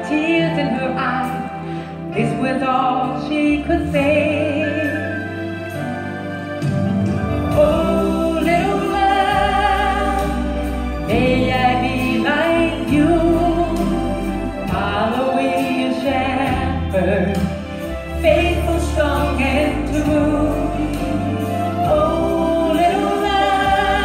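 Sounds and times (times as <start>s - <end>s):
instrumental backing music: 0.0s - 24.0s
woman singing gospel: 7.5s - 17.6s, 18.2s - 24.0s.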